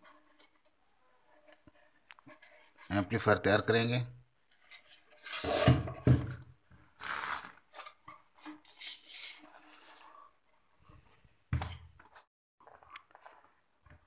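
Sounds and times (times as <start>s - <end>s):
wood scraping on surface: 4.7s - 6.3s.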